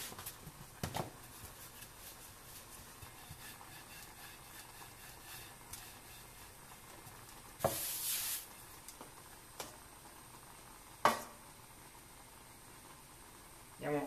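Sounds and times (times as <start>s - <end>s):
short hiss: 7.6s - 8.6s.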